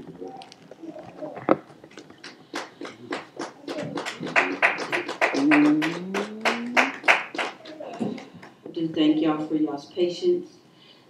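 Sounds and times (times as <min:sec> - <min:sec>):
congregation clapping: 0:02.2 - 0:08.6.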